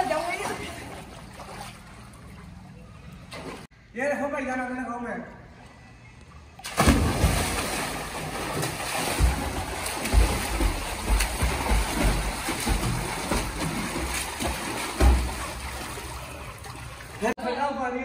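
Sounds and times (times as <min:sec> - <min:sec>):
water splashing and churning: 0:00.0 - 0:03.7, 0:06.6 - 0:17.4
swimmer diving splash: 0:06.6 - 0:17.3
low thuds: 0:06.8 - 0:15.7.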